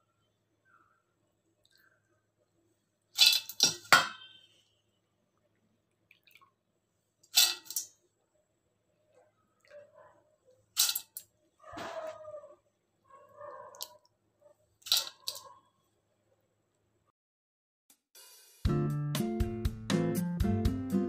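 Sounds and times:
lentils splashing into steel bowl: 0:03.2 - 0:04.0, 0:07.2 - 0:08.0, 0:10.8 - 0:11.2, 0:14.8 - 0:15.4.

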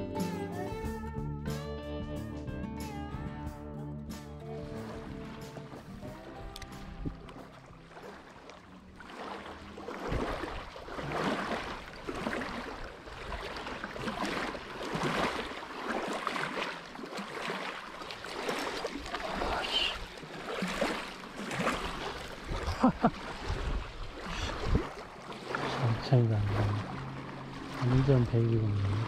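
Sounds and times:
small waves lapping on shore: 0:04.4 - 0:29.0.

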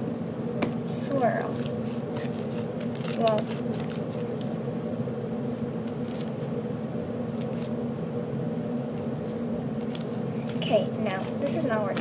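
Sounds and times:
low background hum: 0:00.0 - 0:12.0
slime squishing with crackles: 0:00.9 - 0:04.6, 0:05.5 - 0:06.5, 0:08.9 - 0:12.0.

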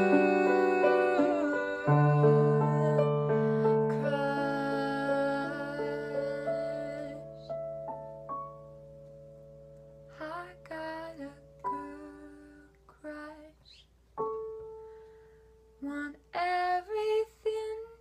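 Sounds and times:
woman singing: 0:00.0 - 0:07.6, 0:10.1 - 0:13.8, 0:15.8 - 0:18.0
keyboard chords: 0:00.0 - 0:10.2.

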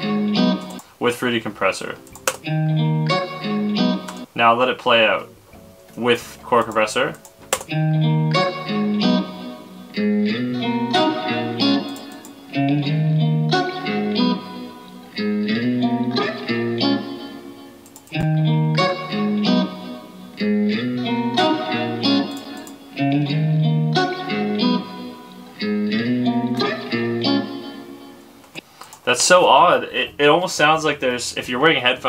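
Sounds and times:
crackling distortion: 0:00.0 - 0:23.0
looped guitar phrase: 0:00.0 - 0:28.4.

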